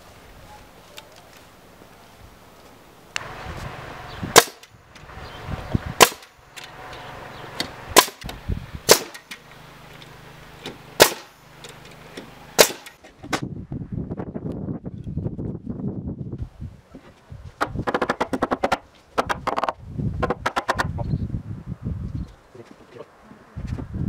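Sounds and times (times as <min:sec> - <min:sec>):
pneumatic nailer firing nails: 0:04.3 - 0:04.8, 0:06.0 - 0:06.8, 0:07.5 - 0:09.5, 0:10.6 - 0:13.4, 0:17.6 - 0:20.9.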